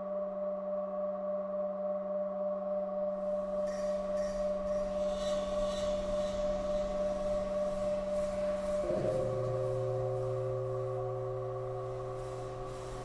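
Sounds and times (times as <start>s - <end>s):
electronic drone tones: 3.3s - 13.0s
pulsing high hiss: 3.4s - 13.0s.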